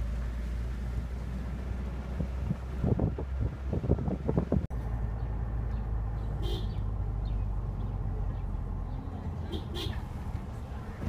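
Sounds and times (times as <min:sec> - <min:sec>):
car interior rumble: 0:00.0 - 0:11.0
wind buffeting microphone: 0:02.0 - 0:04.7.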